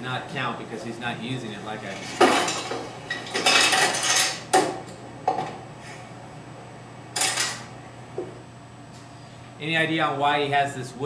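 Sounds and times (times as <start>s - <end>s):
machine parts clattering and knocking: 2.0s - 4.4s.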